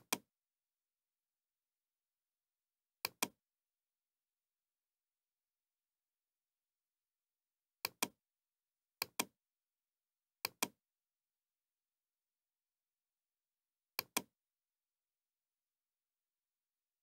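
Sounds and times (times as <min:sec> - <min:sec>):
computer mouse clicks: 0:00.0 - 0:00.3, 0:03.0 - 0:03.4, 0:07.8 - 0:08.2, 0:09.0 - 0:09.4, 0:10.4 - 0:10.8, 0:14.0 - 0:14.3.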